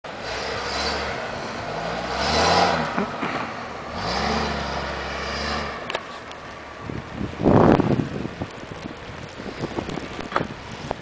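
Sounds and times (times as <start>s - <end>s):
truck engine revving: 0.1s - 6.2s.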